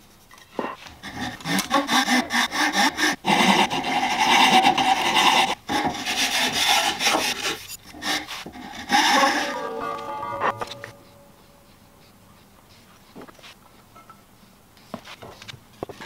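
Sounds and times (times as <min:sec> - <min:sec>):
hand file scraping wood: 0:00.6 - 0:11.2.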